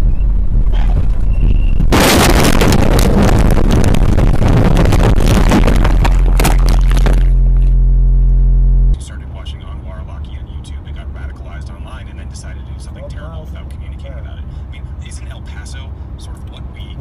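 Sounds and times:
steady low hum: 0.0 - 13.0
truck crashing: 0.9 - 7.8
banging crunching and scraping metal: 4.0 - 7.7.

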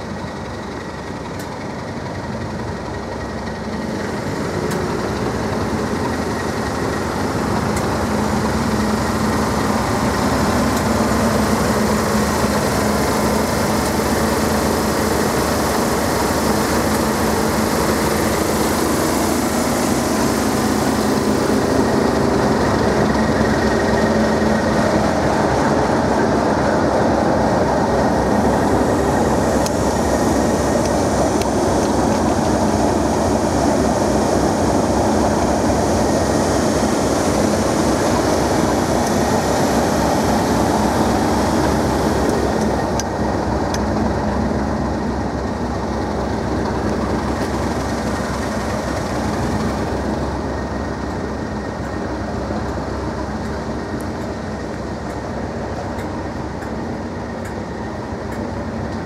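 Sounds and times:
diesel locomotive engine: 0.0 - 59.0
train coaches rolling past: 0.0 - 59.0.

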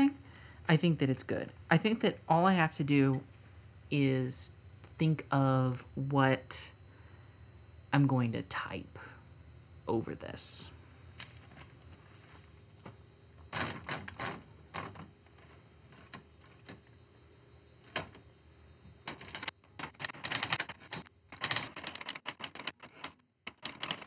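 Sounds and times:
rapid typewriter typing: 19.1 - 24.0.

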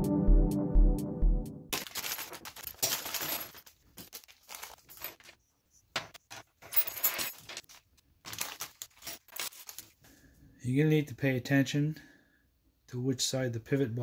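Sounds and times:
rustling: 1.8 - 5.4, 6.3 - 10.1.

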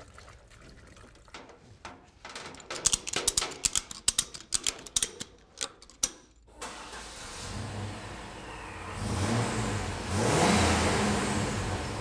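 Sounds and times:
ratchet strap clicking: 2.7 - 6.2.

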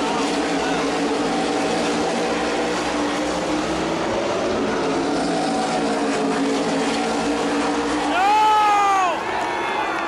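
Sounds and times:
race car engines droning: 0.0 - 10.0.

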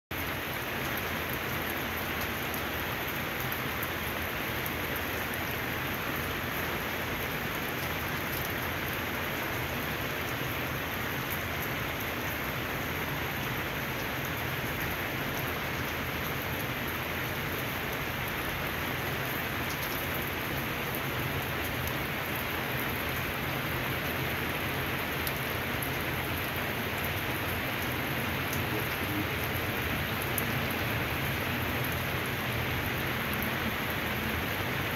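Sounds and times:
rain on wet pavement: 0.1 - 34.9
raindrop ticks: 7.6 - 8.9, 19.2 - 20.3, 25.2 - 32.1.

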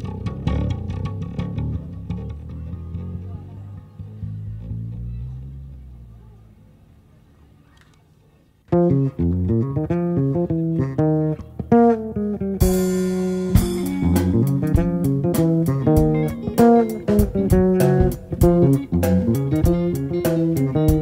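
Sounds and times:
electric bass riff: 0.0 - 6.7, 8.7 - 21.0
electric guitar riff: 8.7 - 21.0
drums with cymbal crash: 12.6 - 21.0.

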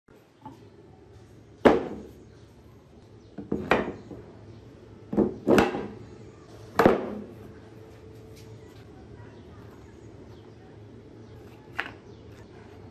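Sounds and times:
wooden blocks knocking: 5.1 - 6.0, 11.7 - 12.1.

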